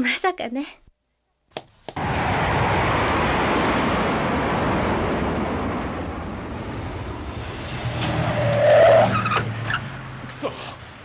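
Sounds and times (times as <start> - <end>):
steady rushing roar: 2.0 - 10.3
car engine approaching: 2.0 - 11.0.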